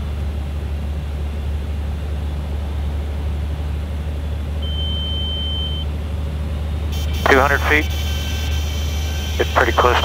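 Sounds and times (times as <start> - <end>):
aircraft cockpit engine drone: 0.0 - 10.0
high-pitched warning horn: 6.9 - 10.0.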